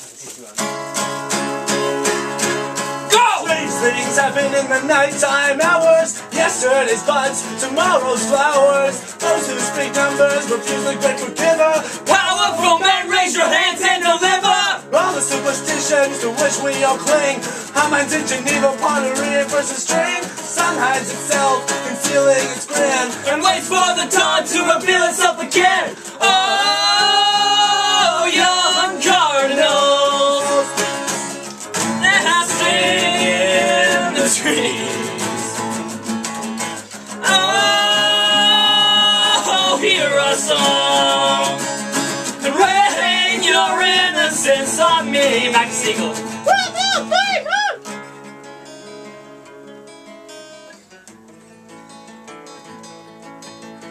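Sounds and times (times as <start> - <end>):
acoustic guitars playing: 0.0 - 53.9
person singing: 3.1 - 31.1, 31.8 - 36.0, 36.8 - 47.8.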